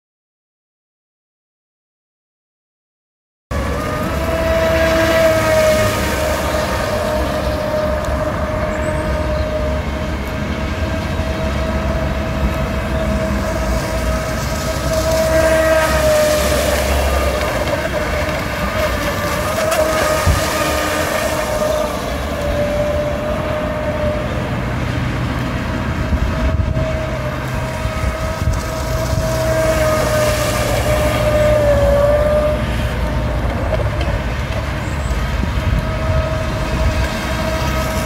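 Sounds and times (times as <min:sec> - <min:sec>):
electric motor whining: 0:26.0 - 0:34.6.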